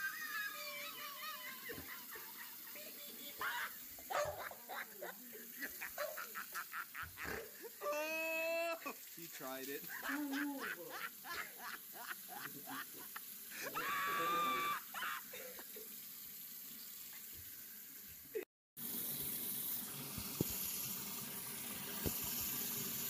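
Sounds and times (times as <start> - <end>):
high-pitched cry: 0.0 - 5.1, 5.8 - 8.9, 13.6 - 15.6
sink tap running: 0.0 - 7.8, 8.8 - 18.2, 18.8 - 23.0
voices: 0.0 - 15.8.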